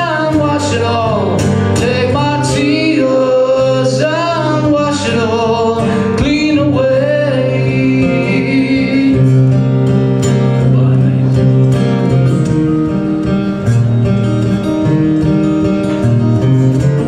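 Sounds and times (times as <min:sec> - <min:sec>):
man singing folk song: 0:00.0 - 0:12.2
acoustic guitar: 0:00.0 - 0:17.0.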